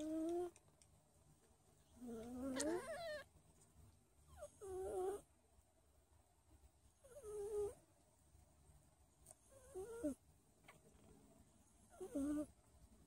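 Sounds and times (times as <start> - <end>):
kittens mewing: 2.2 - 3.3.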